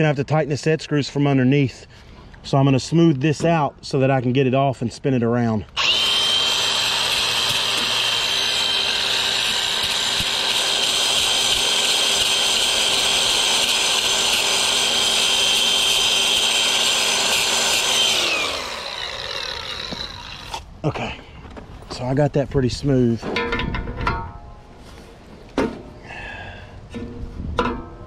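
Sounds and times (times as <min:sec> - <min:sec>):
angle grinder whining: 0:05.8 - 0:20.6.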